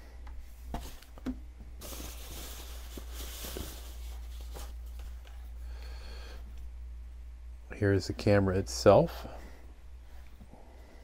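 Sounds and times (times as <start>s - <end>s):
tissue paper rustling: 1.8s - 5.4s.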